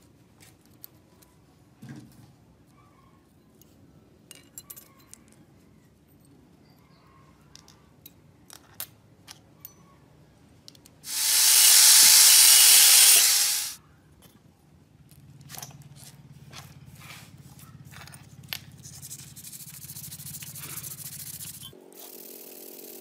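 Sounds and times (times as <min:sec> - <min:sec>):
loud steady hiss: 0:11.1 - 0:13.8.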